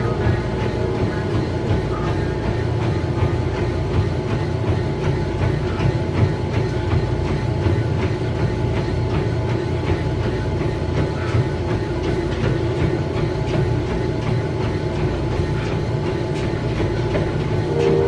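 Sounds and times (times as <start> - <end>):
footfalls on treadmill: 0.0 - 18.0
treadmill belt and motor rumble: 0.0 - 18.0.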